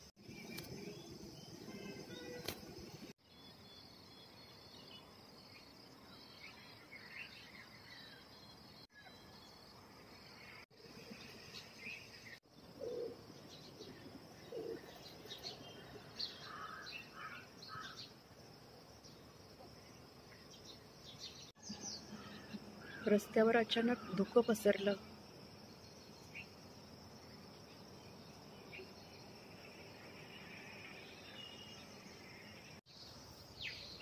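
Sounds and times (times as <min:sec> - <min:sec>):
birds chirping: 0:00.0 - 0:18.2
faint outdoor hiss: 0:00.0 - 0:34.0.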